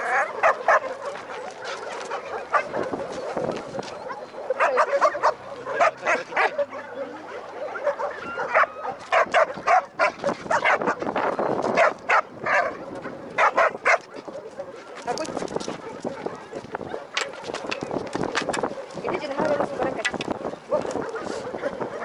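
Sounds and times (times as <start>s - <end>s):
dogs barking: 0.0s - 22.0s.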